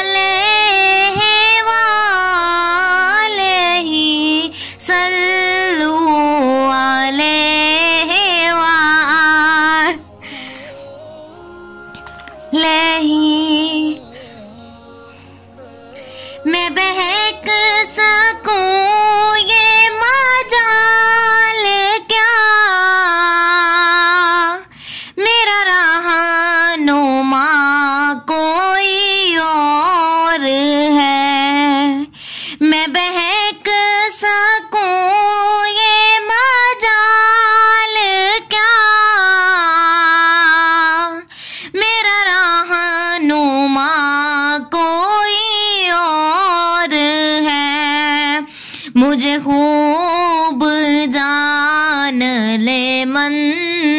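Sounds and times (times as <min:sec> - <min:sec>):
faint low backing music: 0:00.0 - 0:24.1
person singing: 0:00.0 - 0:41.3
singer breathing: 0:04.5 - 0:04.9, 0:10.1 - 0:11.2, 0:14.0 - 0:16.5, 0:24.7 - 0:25.2, 0:32.1 - 0:32.6, 0:41.2 - 0:41.8, 0:48.4 - 0:49.0.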